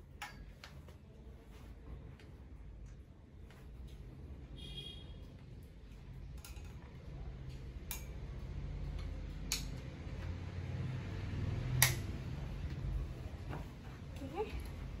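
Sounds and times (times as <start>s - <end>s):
plug and switch clicks: 11.8s - 12.1s.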